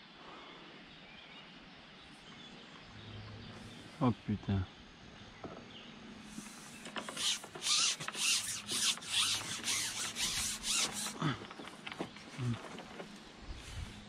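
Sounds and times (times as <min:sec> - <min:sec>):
rubbing against microphone: 0:06.2 - 0:14.0.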